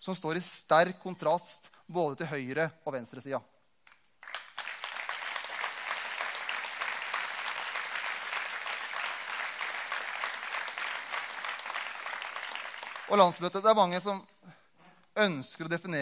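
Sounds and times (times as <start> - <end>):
audience applause: 4.2 - 13.2.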